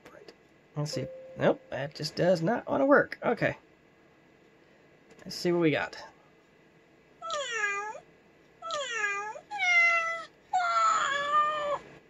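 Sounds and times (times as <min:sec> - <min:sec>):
recorded cat meows from speakers: 0:08.7 - 0:11.8.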